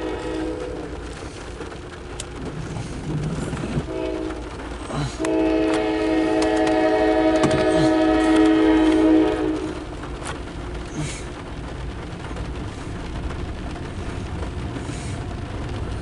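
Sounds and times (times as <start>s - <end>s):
locomotive air horn: 0.0s - 1.4s, 3.6s - 10.0s
train rumbling: 0.0s - 16.0s.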